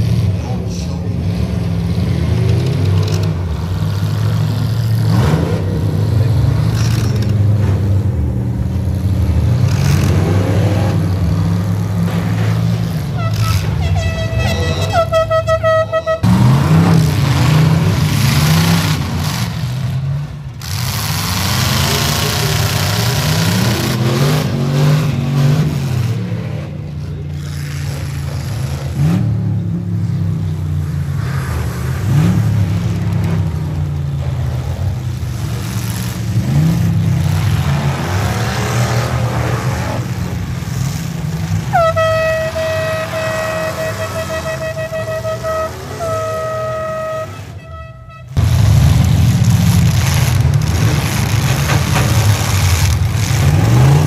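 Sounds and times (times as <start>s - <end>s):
truck engines revving: 0.0s - 54.0s
horn blast: 13.1s - 16.5s, 41.6s - 48.5s.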